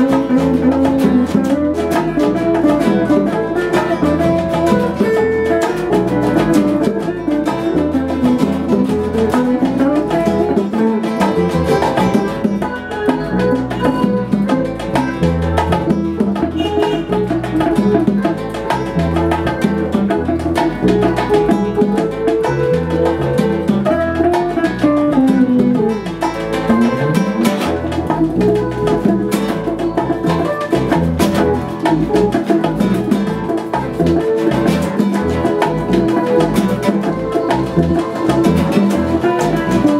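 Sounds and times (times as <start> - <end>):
guitars playing latin groove: 0.0 - 39.9
hand drums: 0.0 - 39.9
sliding melody line: 0.0 - 39.9.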